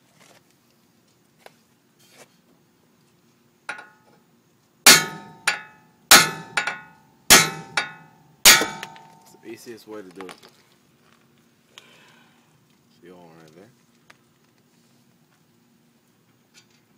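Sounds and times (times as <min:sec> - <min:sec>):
hammer striking metal: 0:03.7 - 0:04.0, 0:04.9 - 0:09.3.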